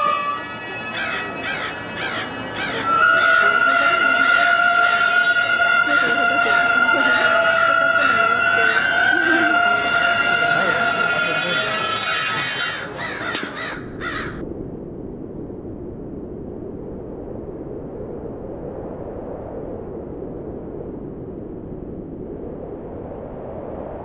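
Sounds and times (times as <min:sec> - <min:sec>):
crow cawing: 0:00.0 - 0:14.4
low outdoor rumble: 0:00.0 - 0:24.0.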